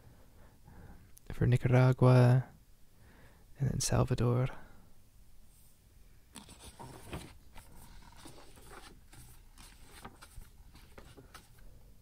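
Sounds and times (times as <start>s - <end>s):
book pages turning: 6.3s - 11.7s.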